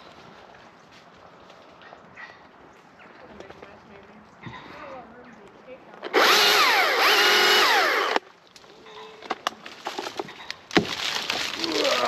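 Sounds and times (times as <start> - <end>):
wood cracking: 5.9 - 12.0
chainsaw cutting wood: 6.1 - 8.2
wood crackling and rustling: 8.2 - 12.0.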